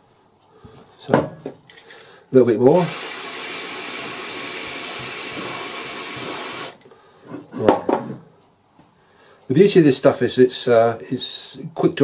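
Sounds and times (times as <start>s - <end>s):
aerosol spray hiss: 2.7s - 6.8s.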